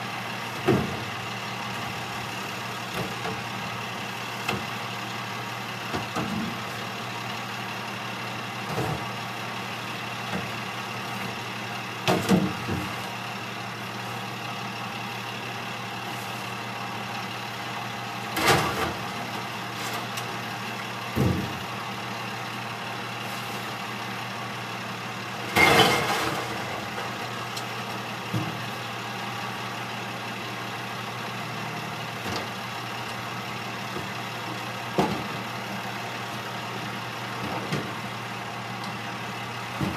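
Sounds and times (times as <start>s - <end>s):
truck engine idling: 0.0s - 39.9s
bins clattering and banging: 25.5s - 27.2s.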